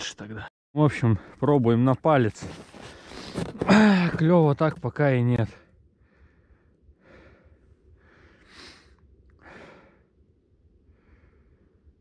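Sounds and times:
man breathing: 6.0 - 10.2, 10.8 - 12.0.

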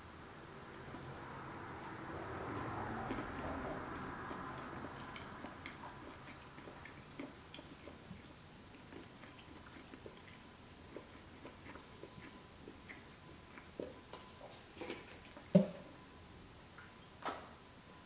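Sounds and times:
person chewing: 1.8 - 15.5.

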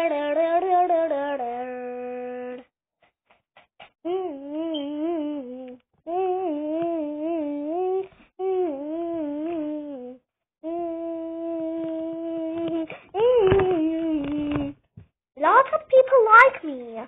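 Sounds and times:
child humming: 0.0 - 2.7, 4.0 - 14.8.

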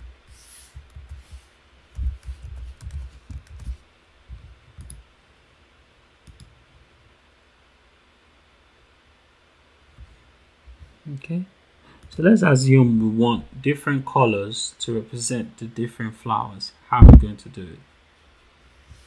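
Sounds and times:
typing on keyboard: 2.0 - 3.8.

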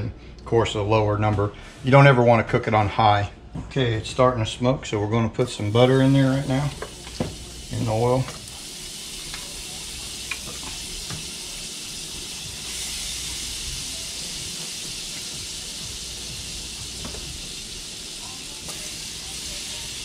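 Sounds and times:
butter sizzling in a pan: 5.5 - 20.0.

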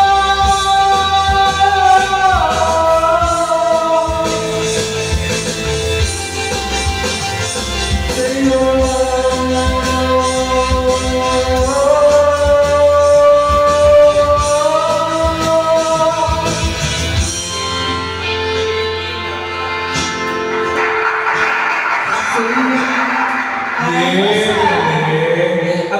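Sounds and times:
man singing into microphone: 0.0 - 5.0, 8.0 - 17.3, 22.1 - 25.9
backing music with bass: 0.0 - 25.9.

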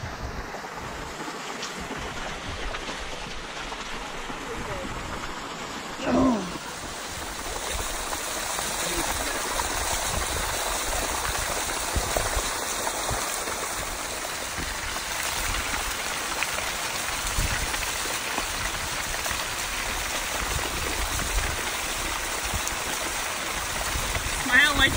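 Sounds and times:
lake water rushing hiss: 0.0 - 24.9
wind on microphone: 9.0 - 15.8, 17.2 - 17.8, 18.6 - 23.0, 23.6 - 24.9.

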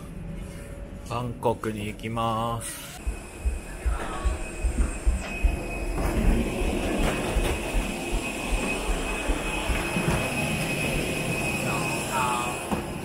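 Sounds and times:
high-pitched whine: 2.6 - 13.0
low machine rumble: 2.8 - 13.0
footsteps on jet bridge floor: 3.1 - 10.7.

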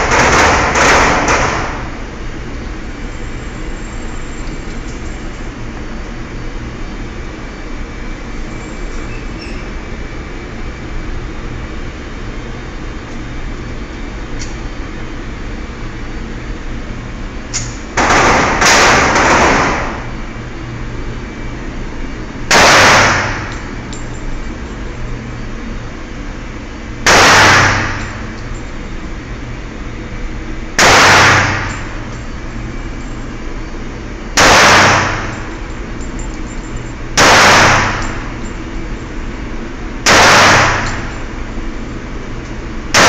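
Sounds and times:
pistol shots echoing: 0.0 - 1.9, 18.0 - 20.0, 22.5 - 23.6, 27.1 - 28.2, 30.8 - 31.9, 34.4 - 35.4, 37.2 - 38.2, 40.1 - 41.2
low hum: 19.2 - 43.0.

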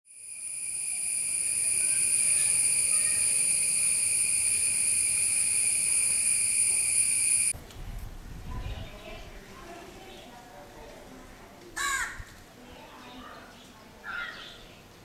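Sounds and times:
high-pitched insect trill: 0.1 - 7.6.

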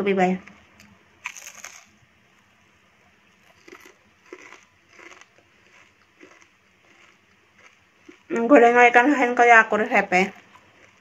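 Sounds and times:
rice cracker being chewed: 0.4 - 1.9, 3.4 - 8.5, 10.2 - 11.0.

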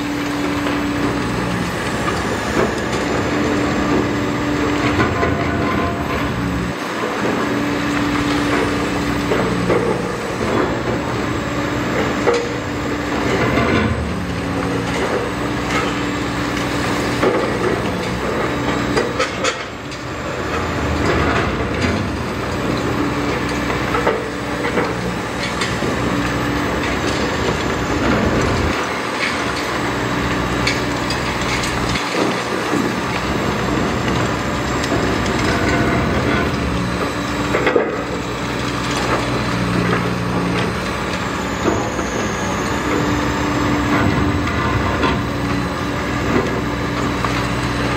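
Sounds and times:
concrete cracking and crushing: 0.0 - 47.9
diesel engine under load: 0.0 - 47.9.

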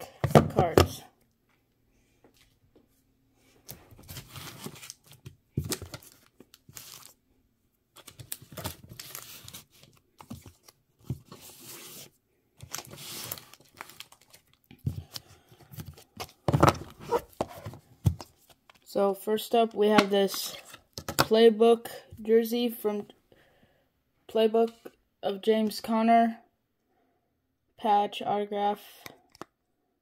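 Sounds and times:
card packaging rustling: 3.9 - 7.2, 8.0 - 18.9.

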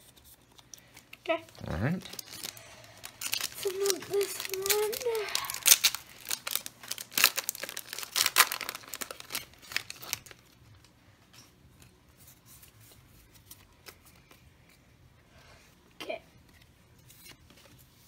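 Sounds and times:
foil pack tearing and crinkling: 2.1 - 10.6.

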